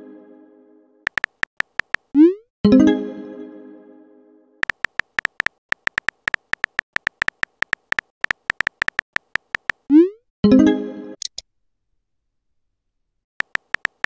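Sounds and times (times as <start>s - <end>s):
high-pitched typing clicks: 1.1s - 2.4s, 4.6s - 10.1s, 13.4s - 14.0s.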